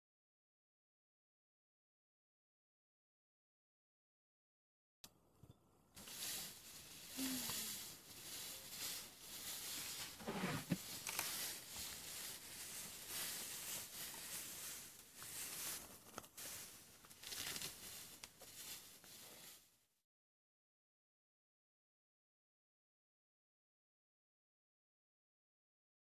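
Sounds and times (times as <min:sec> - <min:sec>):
grass rustling and tearing: 0:06.0 - 0:19.6.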